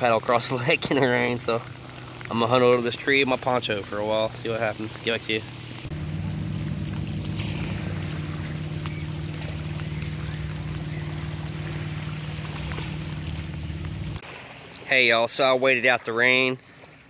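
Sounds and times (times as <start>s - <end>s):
rain hissing: 0.0s - 14.2s
raindrop ticks: 0.0s - 14.2s
low motor drone: 3.5s - 14.2s.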